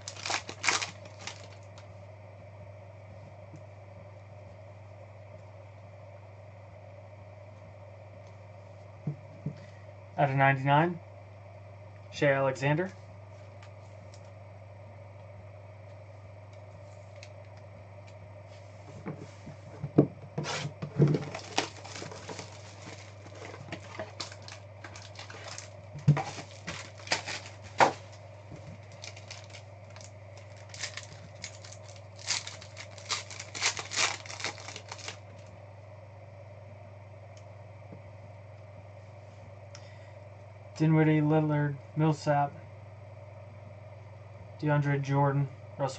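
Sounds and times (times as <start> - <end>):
foil wrappers tearing and crinkling: 0.0 - 1.8, 20.5 - 35.4
steady low hum: 0.0 - 45.9.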